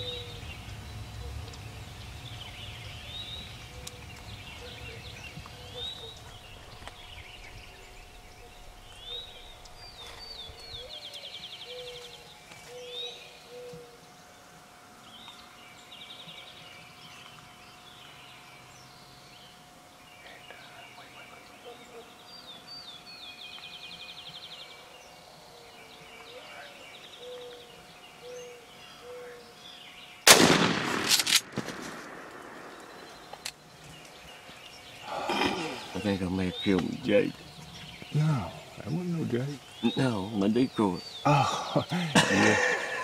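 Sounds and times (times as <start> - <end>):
songbirds chirping and trilling: 0.0 - 43.0
loud shotgun blast: 30.3 - 33.1.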